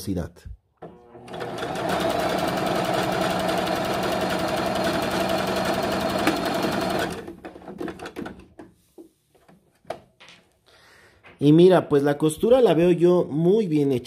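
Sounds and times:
sewing machine stitching: 0:00.8 - 0:08.4.

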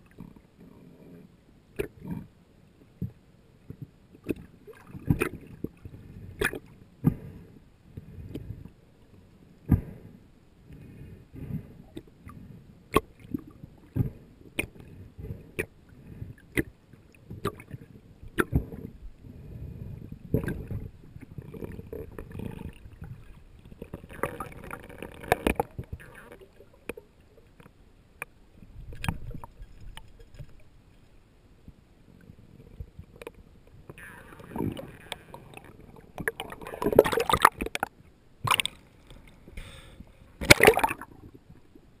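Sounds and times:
rushing gurgling water: 0:34.0 - 0:38.8, 0:40.4 - 0:41.4
sharp underwater knocks: 0:40.4 - 0:41.0.

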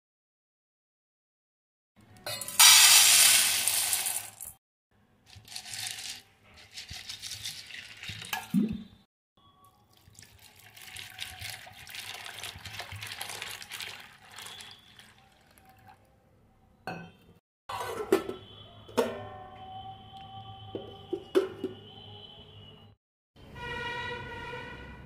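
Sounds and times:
water pouring over chickpeas: 0:02.6 - 0:04.6, 0:05.3 - 0:08.4, 0:09.7 - 0:16.2.

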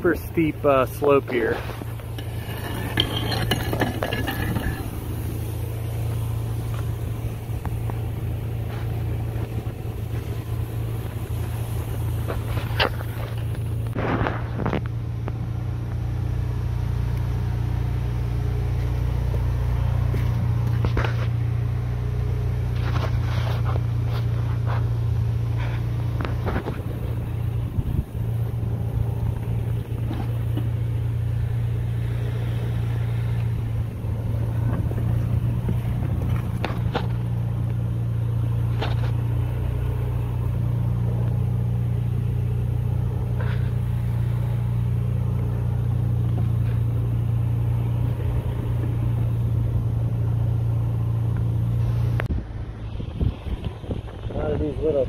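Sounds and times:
motor humming: 0:00.6 - 0:16.2.

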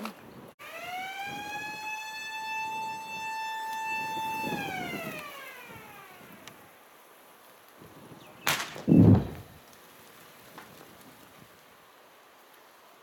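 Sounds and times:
warning siren wailing: 0:00.6 - 0:06.8.

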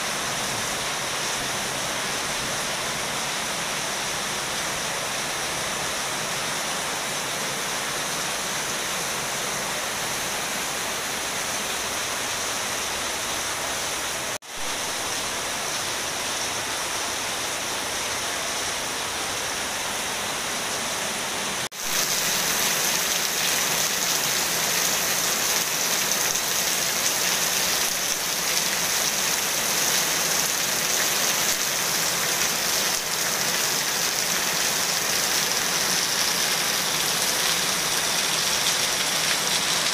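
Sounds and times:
heavy rain on pool and paving: 0:00.0 - 0:39.9.

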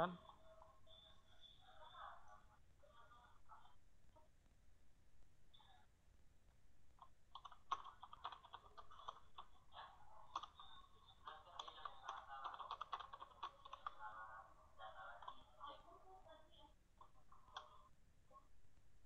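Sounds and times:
keyboard typing: 0:07.0 - 0:14.3.

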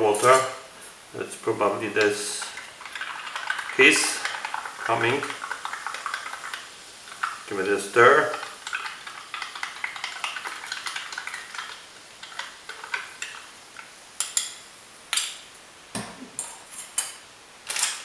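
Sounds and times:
faint fizz of sparkling water: 0:00.8 - 0:14.2.

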